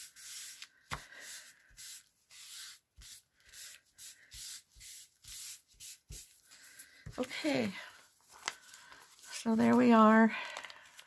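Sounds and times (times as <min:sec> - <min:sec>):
foam applicator scratching paper: 0:00.0 - 0:06.4.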